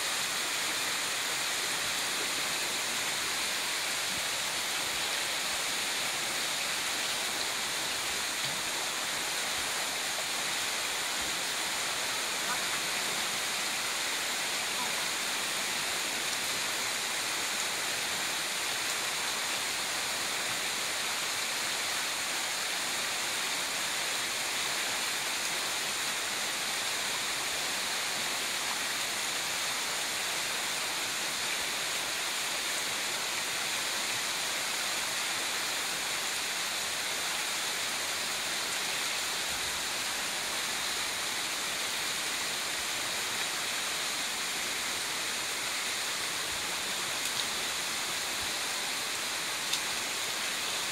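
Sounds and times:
stream rushing over rocks: 0:00.0 - 0:50.9.

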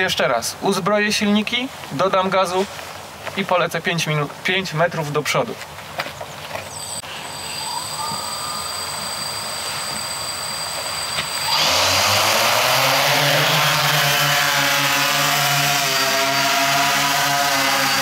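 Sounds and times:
drone propellers whirring: 0:07.0 - 0:18.0.

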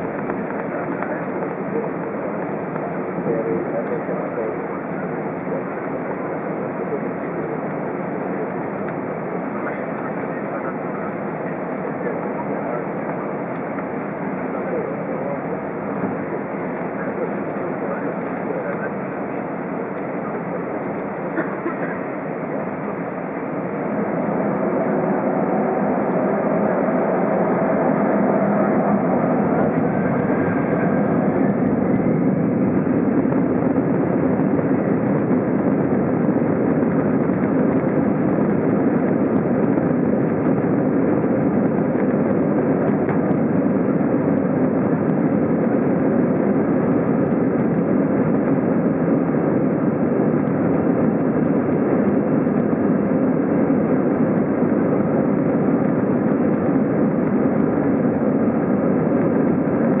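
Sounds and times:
jet engines droning in cabin: 0:00.0 - 1:00.0
faint rising whine: 0:22.0 - 1:00.0.

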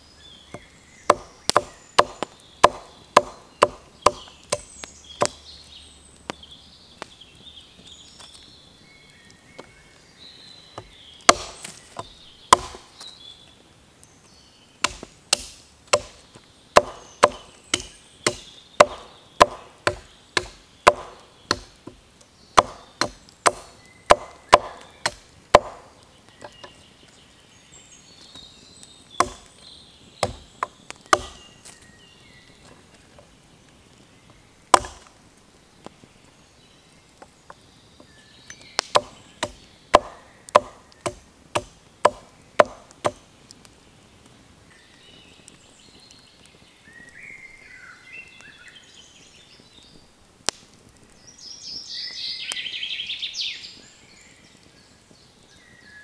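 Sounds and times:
birds chirping faintly: 0:00.0 - 0:56.0
hatchet chopping sticks on a log: 0:00.4 - 0:05.6, 0:10.7 - 0:13.2, 0:14.8 - 0:26.8, 0:29.1 - 0:29.6, 0:30.2 - 0:31.8, 0:34.6 - 0:35.2, 0:37.2 - 0:43.7.

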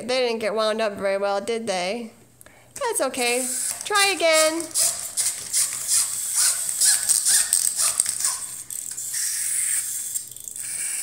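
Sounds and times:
clockwork toy motors whirring: 0:03.2 - 0:11.0.

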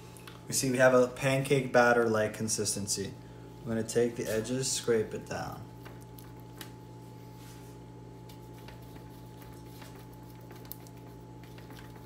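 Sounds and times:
steady low hum: 0:00.0 - 0:12.0
scraping wet batter in plastic bowl: 0:08.2 - 0:12.0.

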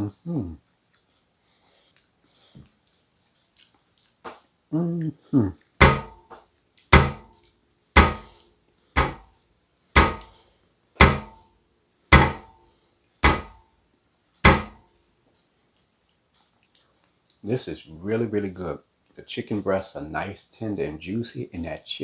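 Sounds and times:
heavy ringing thumps: 0:11.0 - 0:11.4, 0:12.1 - 0:12.6.

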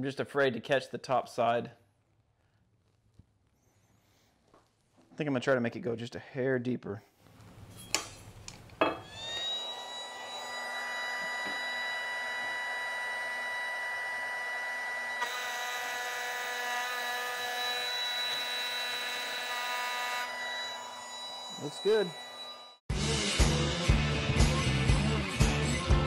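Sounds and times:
router high whine: 0:09.0 - 0:22.8.

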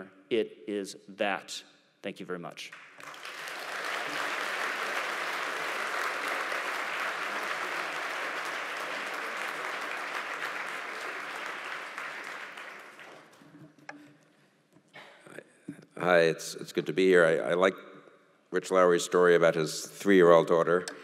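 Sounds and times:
audience applauding: 0:02.7 - 0:13.7.

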